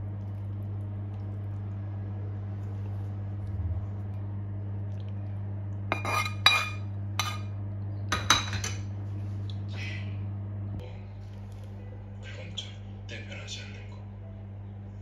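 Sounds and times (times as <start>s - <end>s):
low steady hum: 0.0s - 15.0s
metal spoon clinking and scraping: 5.9s - 7.5s.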